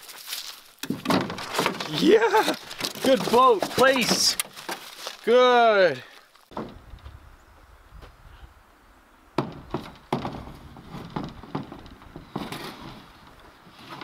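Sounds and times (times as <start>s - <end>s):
knocks on canoe hull: 9.4s - 12.5s.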